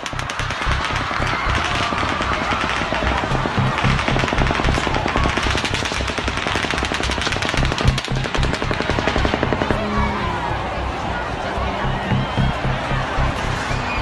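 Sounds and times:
rapid automatic gunfire: 0:00.0 - 0:10.0
background music with low beat: 0:00.0 - 0:14.0.

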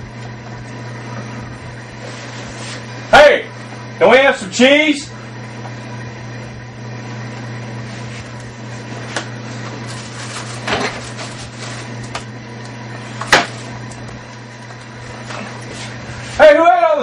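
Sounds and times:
refrigerator hum: 0:00.0 - 0:17.0
knocks and clatters in refrigerator: 0:10.5 - 0:11.2.

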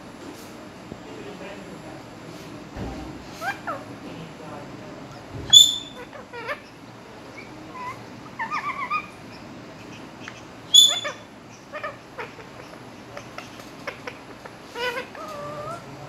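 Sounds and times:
parrot squawking: 0:03.4 - 0:03.9, 0:05.5 - 0:16.0
parrot warbling chatter: 0:03.4 - 0:04.0, 0:05.5 - 0:16.0.

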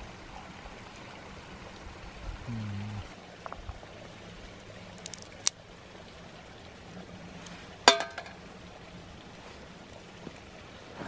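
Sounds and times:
creek flowing: 0:00.0 - 0:11.0
chestnut shells cracking: 0:05.0 - 0:05.5.

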